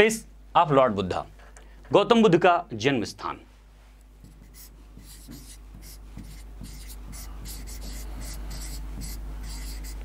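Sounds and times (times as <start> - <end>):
low electrical hum: 0.0 - 10.0
pen scratching on whiteboard: 4.2 - 10.0.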